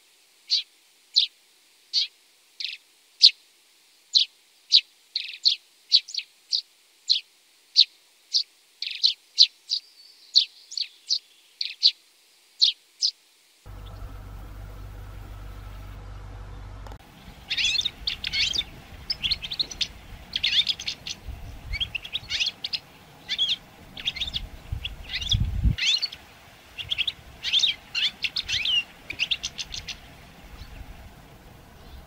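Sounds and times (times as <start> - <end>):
birds twittering: 13.7 - 32.0
low steady rumble: 13.7 - 32.0.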